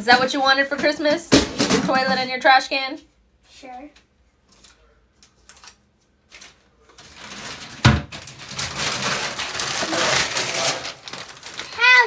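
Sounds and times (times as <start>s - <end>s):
faint paper rustles: 3.6s - 12.0s
wrapping paper tearing and crumpling: 6.4s - 12.0s.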